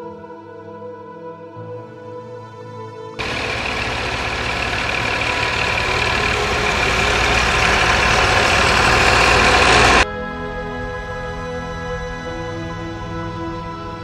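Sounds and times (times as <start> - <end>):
tractor engines running: 3.2 - 10.0.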